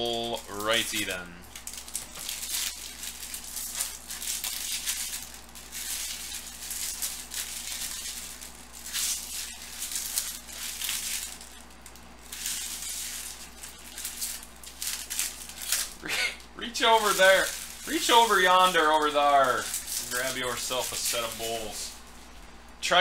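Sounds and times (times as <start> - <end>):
wrappers crinkling: 0.0 - 22.8
cards rustling and sliding: 16.8 - 22.0.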